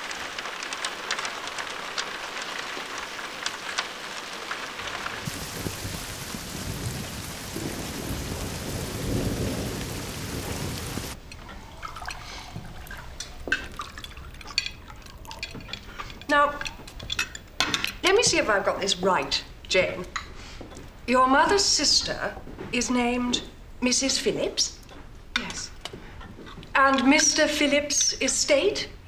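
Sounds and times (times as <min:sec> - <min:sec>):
rain pattering: 0:00.0 - 0:29.0
rolling thunder: 0:04.8 - 0:13.1.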